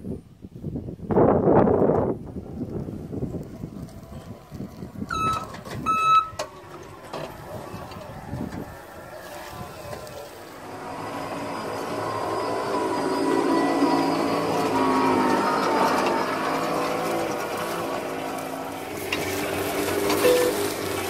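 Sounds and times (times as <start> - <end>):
short electronic beeps: 5.1 - 6.4
robot electric drive whine: 5.1 - 20.8.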